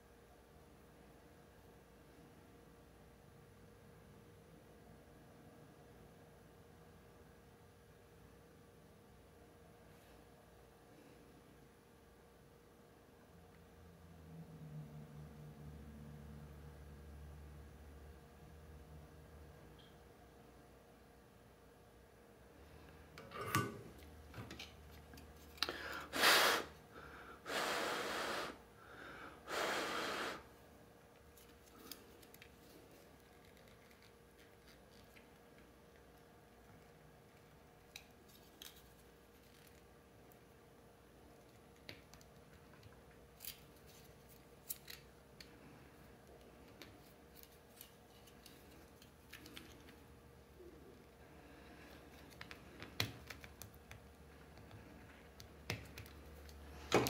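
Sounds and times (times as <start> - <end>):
long puffs of breath: 25.6 - 30.6
plastic parts clicking and scraping: 46.3 - 50.0.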